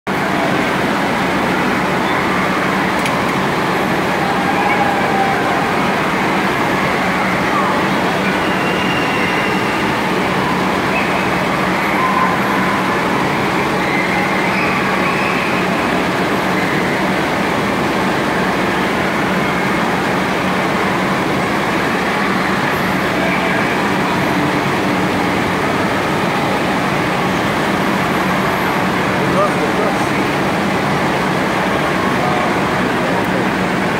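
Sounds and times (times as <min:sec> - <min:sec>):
distant voices echoing: 0:00.1 - 0:33.9.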